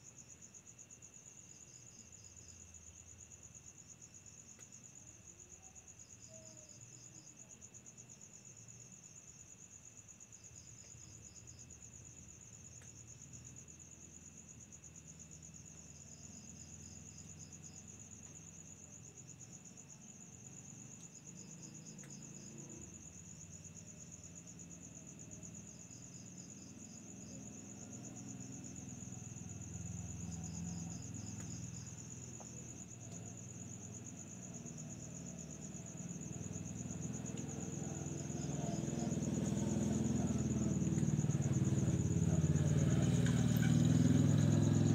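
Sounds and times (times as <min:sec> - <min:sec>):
crickets trilling: 0:00.0 - 0:44.9
insect pulsed chirps: 0:20.7 - 0:44.9.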